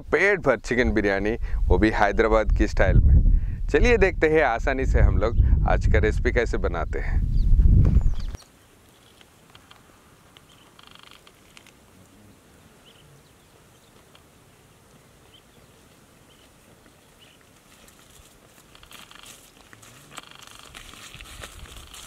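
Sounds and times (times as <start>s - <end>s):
footsteps brushing through plants: 16.3s - 22.0s.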